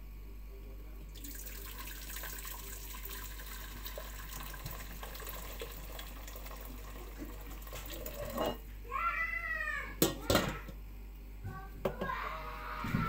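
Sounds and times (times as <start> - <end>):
water pouring into metal pot: 1.2 - 8.6.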